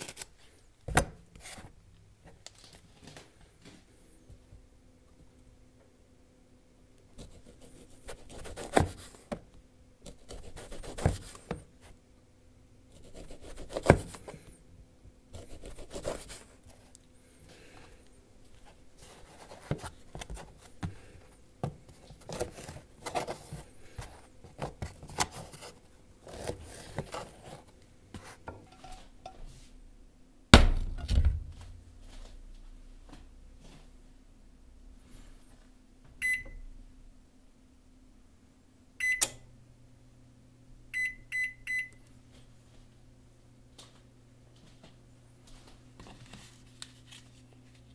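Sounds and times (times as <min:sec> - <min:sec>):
deep thump: 0:30.6 - 0:31.6.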